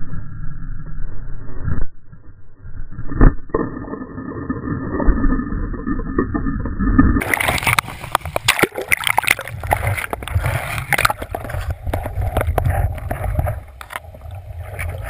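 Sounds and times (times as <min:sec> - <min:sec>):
muffled underwater rushing water: 0:00.0 - 0:15.0
loud splashing and sloshing: 0:07.2 - 0:12.1
heavy splash: 0:07.2 - 0:12.4.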